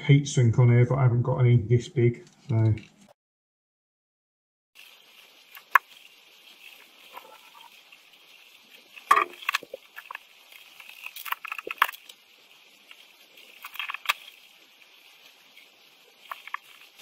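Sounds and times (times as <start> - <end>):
faint steady hiss: 4.8 - 17.0.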